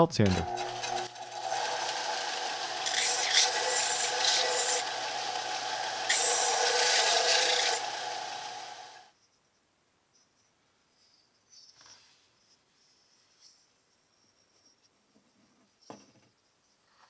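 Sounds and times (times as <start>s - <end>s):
belt sander motor hum: 0.2s - 9.1s
hissing sanding rasp: 0.7s - 9.0s.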